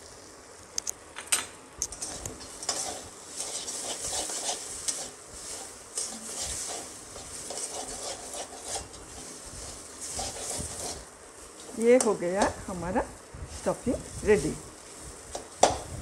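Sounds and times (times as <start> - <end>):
light sizzle of frying: 0.0 - 16.0
metal spatula scraping pan: 2.0 - 11.8.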